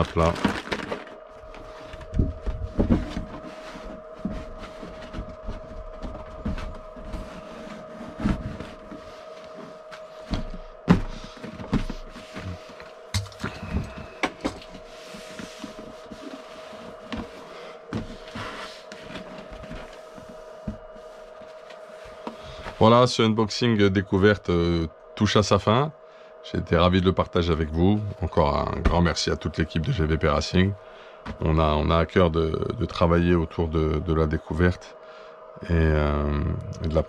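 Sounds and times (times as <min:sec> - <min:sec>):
steady hum: 0:00.0 - 0:37.0
cardboard boxes knocking and rustling: 0:02.0 - 0:09.0, 0:10.2 - 0:14.9.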